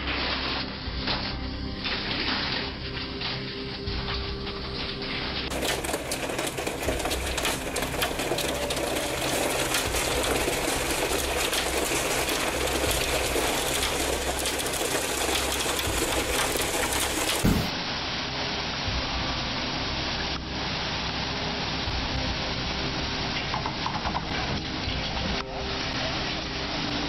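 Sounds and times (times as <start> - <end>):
hail on a corrugated roof: 0.0 - 27.0.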